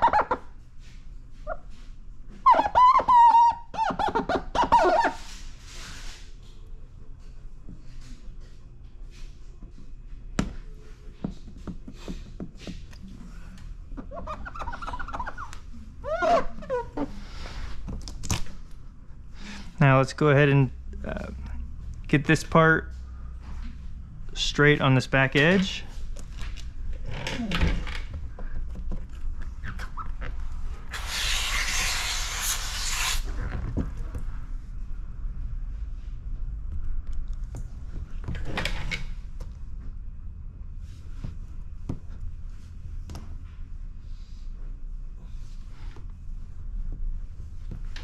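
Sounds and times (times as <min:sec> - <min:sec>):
wavering squeaks: 0:02.3 - 0:05.4, 0:14.0 - 0:17.3
fingertips rubbing wet film: 0:30.9 - 0:33.2.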